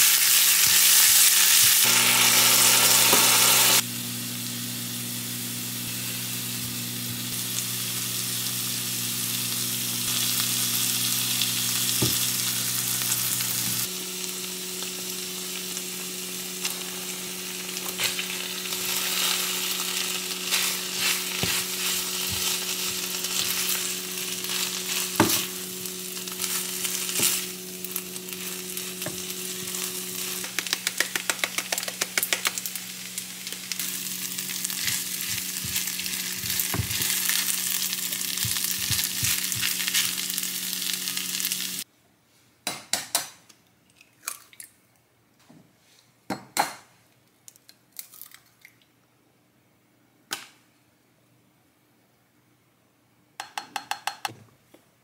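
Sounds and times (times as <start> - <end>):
fried rice sizzling in a pan: 0.0 - 41.9.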